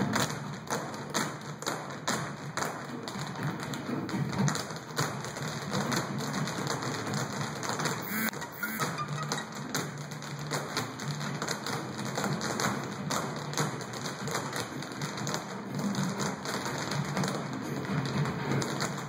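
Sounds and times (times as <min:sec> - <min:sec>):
background music: 0:08.0 - 0:10.0.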